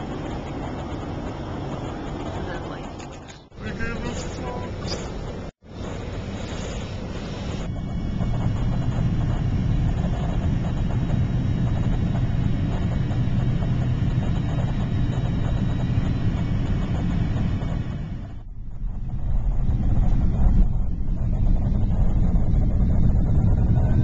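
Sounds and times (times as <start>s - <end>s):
jet engine rumble: 0.0s - 24.0s
rushing air: 4.9s - 24.0s.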